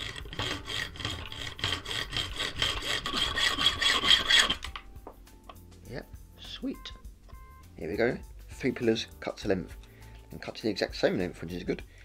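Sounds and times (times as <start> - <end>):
hand saw rasping through metal: 0.0 - 4.8.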